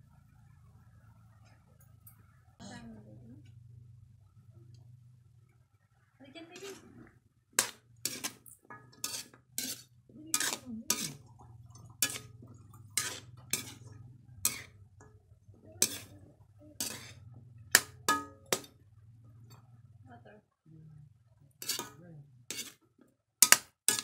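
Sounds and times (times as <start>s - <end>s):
spatula scraping a wok: 6.6s - 19.8s, 21.5s - 24.0s.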